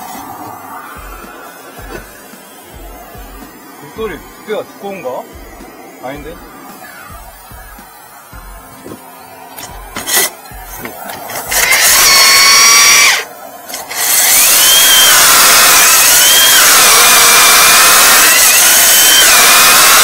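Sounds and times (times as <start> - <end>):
core drill boring through brick: 9.6 - 20.0.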